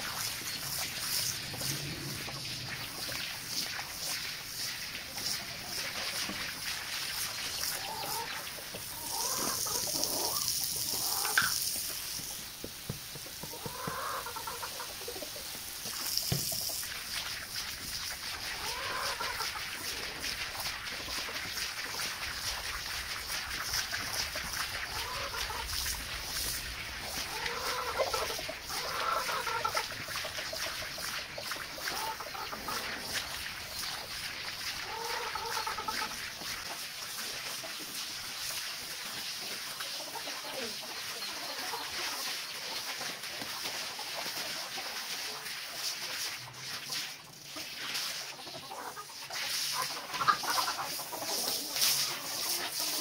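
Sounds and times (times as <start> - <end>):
brush scrubbing a wet rug: 0.0 - 53.0
spraying water: 0.0 - 53.0
chickens clucking: 7.5 - 11.7, 13.2 - 15.8, 18.5 - 20.1, 24.3 - 25.8, 27.1 - 34.1, 34.8 - 36.8, 39.5 - 44.8, 48.3 - 53.0.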